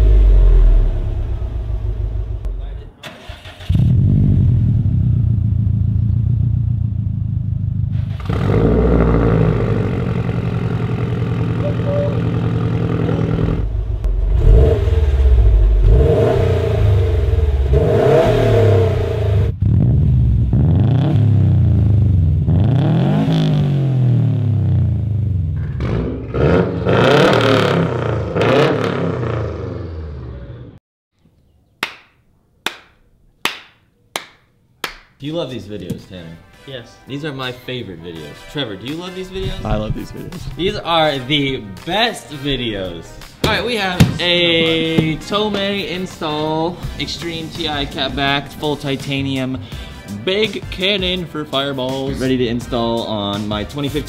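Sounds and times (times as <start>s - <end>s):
car engine idling and revving: 0.0s - 30.8s.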